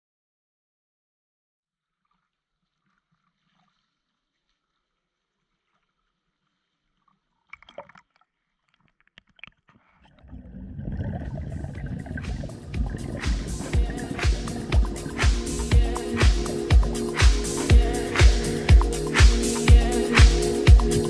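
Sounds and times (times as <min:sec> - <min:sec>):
water splashing against camera: 0:07.3 - 0:16.6
rush of water: 0:11.1 - 0:16.5.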